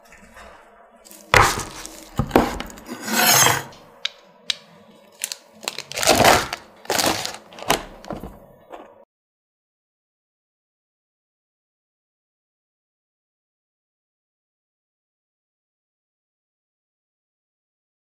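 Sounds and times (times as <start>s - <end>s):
rasping scrape: 0.0s - 3.9s
nougat cracking and crunching: 1.1s - 2.9s, 3.9s - 8.2s.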